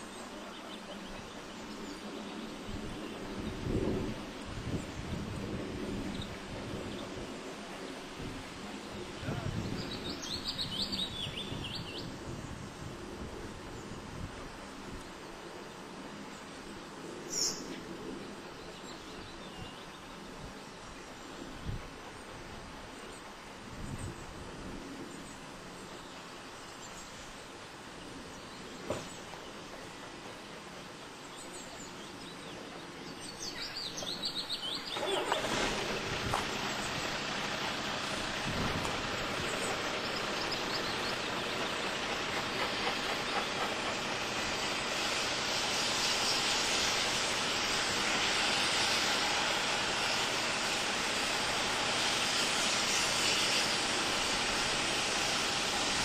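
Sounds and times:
train rumbling: 0.0 - 12.9, 20.7 - 56.0
steam hissing: 33.2 - 56.0.

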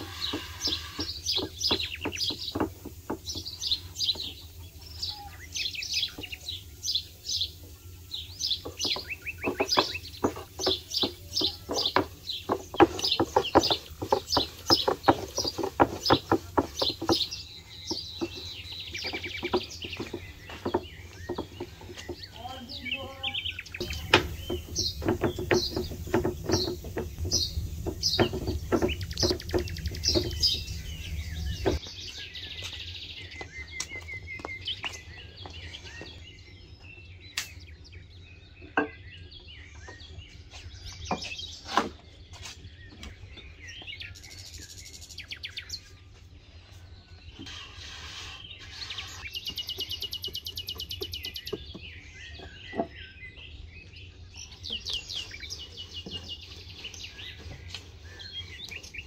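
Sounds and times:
small birds chirping: 0.0 - 59.0
rolling pin knocking on board: 8.7 - 17.3, 23.8 - 31.8.

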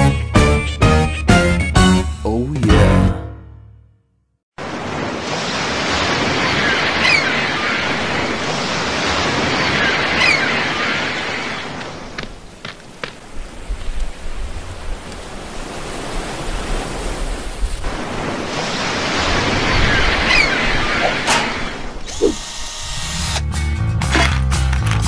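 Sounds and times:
music: 0.0 - 3.8, 23.4 - 25.0
surf washing in: 4.6 - 12.5, 13.2 - 22.1.

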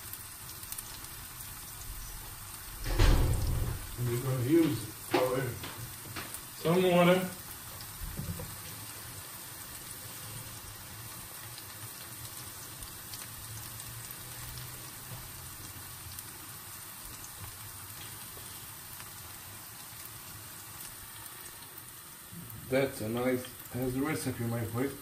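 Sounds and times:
small crackles: 0.0 - 6.7, 7.4 - 22.0
food sizzling in a pan: 0.0 - 25.0.

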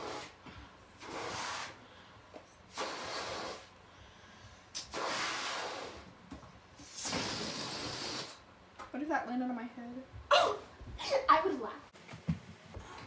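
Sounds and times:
person blowing up balloon: 0.0 - 0.4, 1.0 - 1.9, 2.7 - 3.8, 4.7 - 6.2, 6.8 - 8.5.

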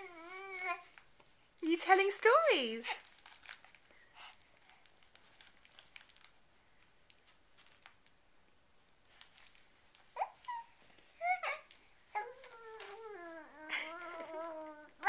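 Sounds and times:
fabric toy clicks and crinkles: 0.8 - 8.2, 8.9 - 10.9, 11.7 - 13.2.

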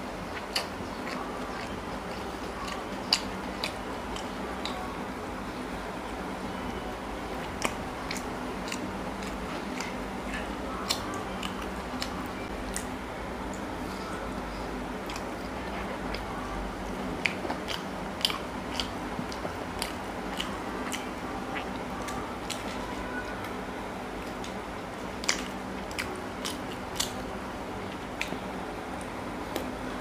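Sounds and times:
person chewing with mouth clicks: 0.3 - 4.9, 7.3 - 14.0, 15.0 - 22.8, 24.2 - 28.4.

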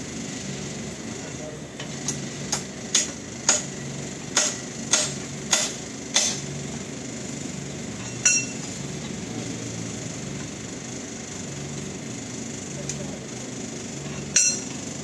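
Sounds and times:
hammer striking metal: 2.9 - 3.7, 4.3 - 6.4, 8.1 - 8.6, 14.3 - 14.7
metallic clink with ring: 8.0 - 8.6, 14.3 - 14.7.

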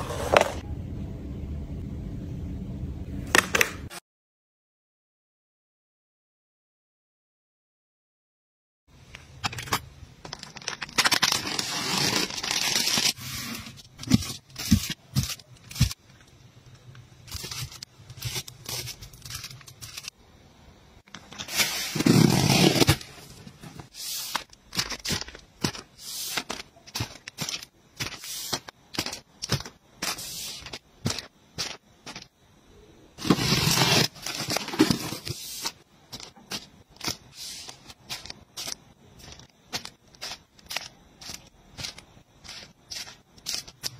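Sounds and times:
plastic wrapping rustling: 9.6 - 16.0, 17.2 - 20.1, 21.2 - 32.2
tearing and scraping packaging: 9.6 - 16.0, 17.3 - 20.1, 21.4 - 32.2, 33.2 - 43.9
cardboard box opened: 21.4 - 23.1, 33.2 - 35.3.

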